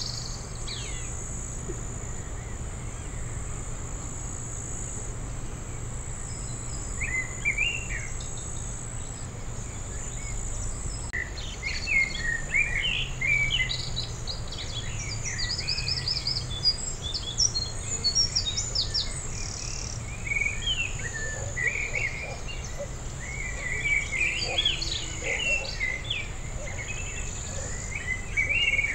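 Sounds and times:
high insect buzz: 0.0s - 28.9s
small birds chirping: 0.0s - 28.9s.

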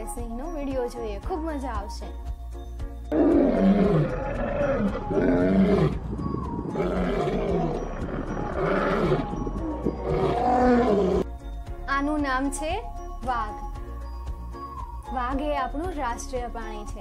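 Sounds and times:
lions roaring: 3.1s - 11.2s.

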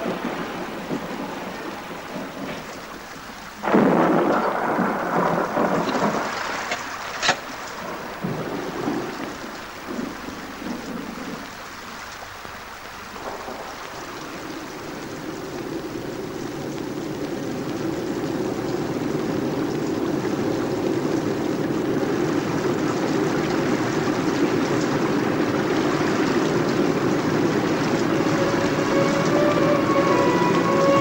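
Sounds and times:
sharp thunder crack: 0.0s - 11.3s, 24.6s - 31.0s
steady rain: 0.0s - 31.0s
thunder rumbling: 0.0s - 31.0s.

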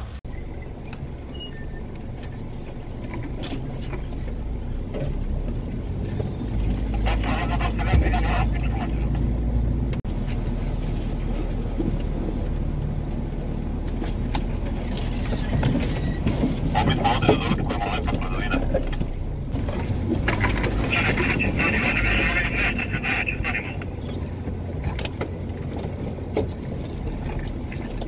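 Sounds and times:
vehicle engine running: 0.0s - 28.0s
branches scraping along vehicle: 10.1s - 12.7s, 13.3s - 28.0s.

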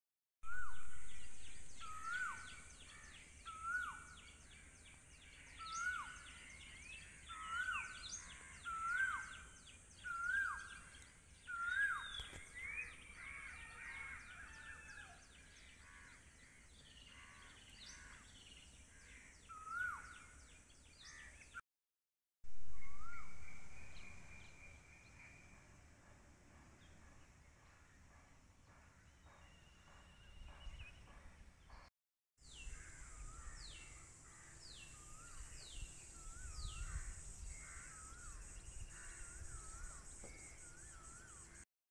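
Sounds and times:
birds chirping: 0.4s - 21.6s, 32.4s - 41.6s
bird whistled call: 8.7s - 10.9s, 11.5s - 13.0s, 22.7s - 25.5s.

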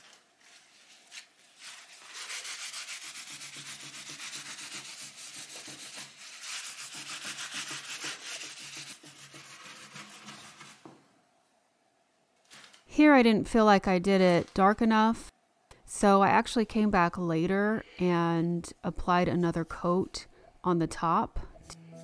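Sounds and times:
wax brush rubbing on wood: 0.0s - 10.9s.

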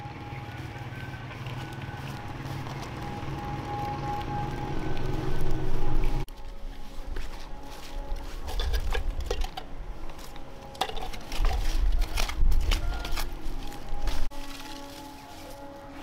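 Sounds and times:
hand tool scraping through ash: 7.1s - 16.0s.

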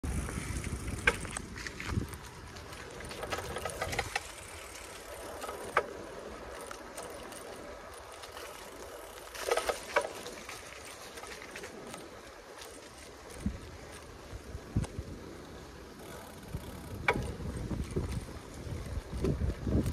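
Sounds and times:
wind rumble on microphone: 0.0s - 5.5s, 13.0s - 19.9s
bicycle rattles and clicks: 0.0s - 19.9s
bicycle tyre noise: 0.0s - 19.9s.

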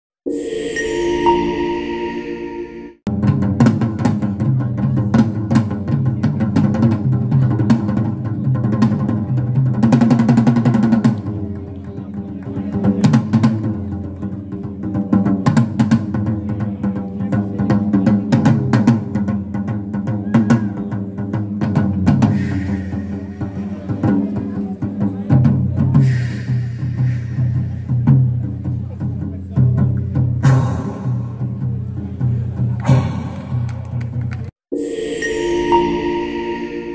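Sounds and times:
drum solo with sticks: 14.6s - 33.7s.

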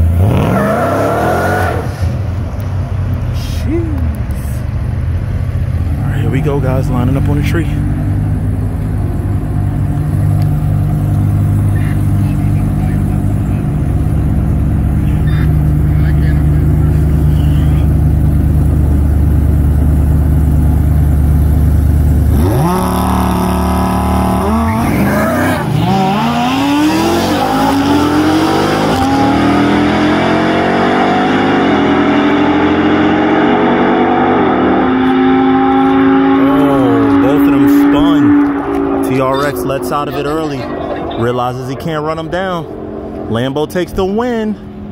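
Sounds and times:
sports car engines at full throttle: 0.0s - 44.9s
pickup engine idling: 2.3s - 22.6s.

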